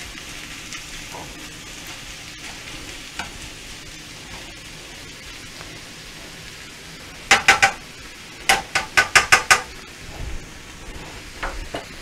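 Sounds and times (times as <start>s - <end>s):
meat and onion sizzling in a skillet: 0.0s - 12.0s
spatula knocking against pan: 7.3s - 7.8s, 8.5s - 9.7s.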